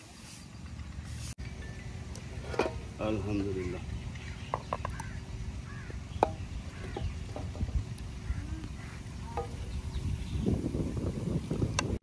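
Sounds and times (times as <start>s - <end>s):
low outdoor rumble: 0.0s - 11.9s
faint bird calls: 3.6s - 10.5s.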